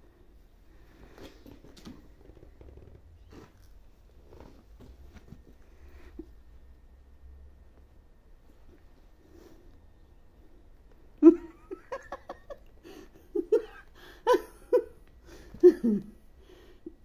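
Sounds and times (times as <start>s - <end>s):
person giggling: 11.2s - 16.2s.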